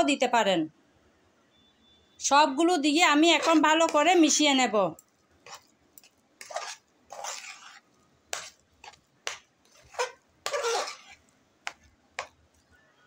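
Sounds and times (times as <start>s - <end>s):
spoon scraping a metal pan: 3.1s - 4.2s, 5.4s - 12.3s.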